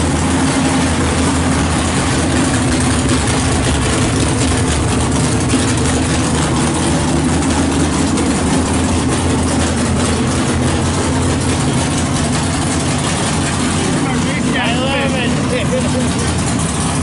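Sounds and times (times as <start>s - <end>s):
vee eight engine idling: 0.0s - 17.0s.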